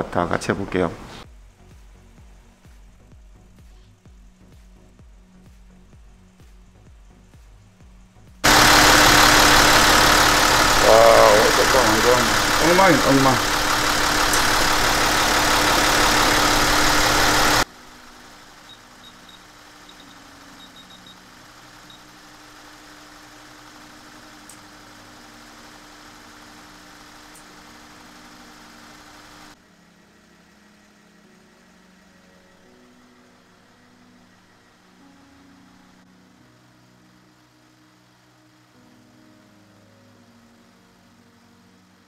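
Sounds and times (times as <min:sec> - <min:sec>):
faint background music: 0:00.0 - 0:08.4, 0:29.5 - 0:42.0
car engine idling: 0:08.4 - 0:29.6.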